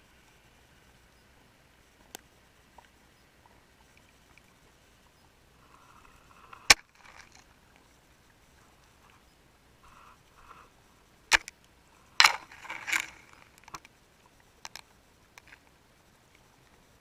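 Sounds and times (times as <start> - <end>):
sharp underwater knocks and clicks: 11.3 - 11.6, 12.2 - 13.9, 14.6 - 15.6.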